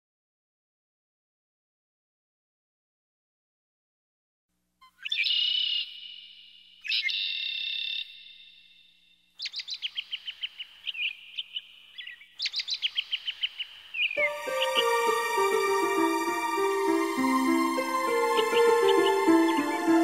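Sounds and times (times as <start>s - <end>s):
bird calling high: 4.8s - 8.2s, 9.4s - 20.0s
bird chirps and trills: 4.8s - 20.0s.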